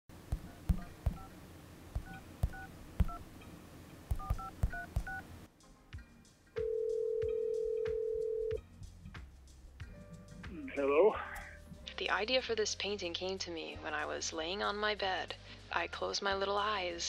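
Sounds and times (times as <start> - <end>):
steady telephone tone: 6.6 - 8.6.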